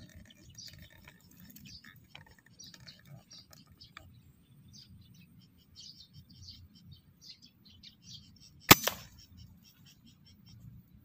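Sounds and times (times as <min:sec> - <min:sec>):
small birds chirping: 0:00.0 - 0:11.0
air rifle crack: 0:08.7 - 0:09.2.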